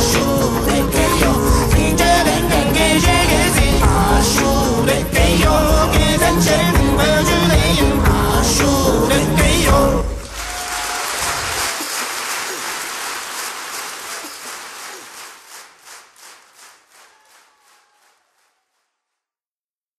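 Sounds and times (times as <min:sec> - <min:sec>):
music: 0:00.0 - 0:10.3
voices: 0:00.0 - 0:15.2
applause: 0:10.2 - 0:19.0.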